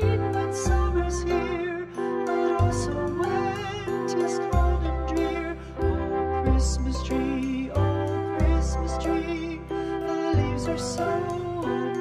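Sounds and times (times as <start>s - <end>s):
gentle instrumental melody: 0.0s - 12.0s
sustained bass notes: 0.0s - 12.0s.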